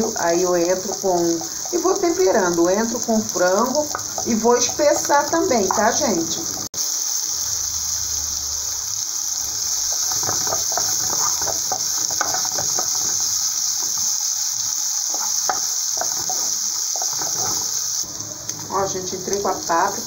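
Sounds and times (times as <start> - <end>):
food sizzling in oil: 0.0 - 20.0
wooden spoon scraping: 9.8 - 14.1, 15.1 - 17.8.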